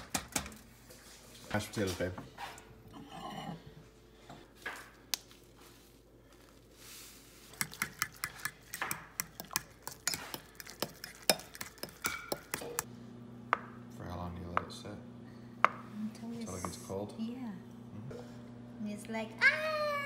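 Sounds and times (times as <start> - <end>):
fork clinking against ceramic bowl: 9.2 - 12.8.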